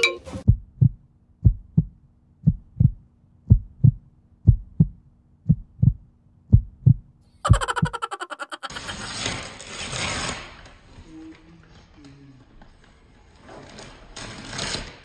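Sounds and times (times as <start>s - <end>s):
heartbeat thumps: 0.5s - 8.0s.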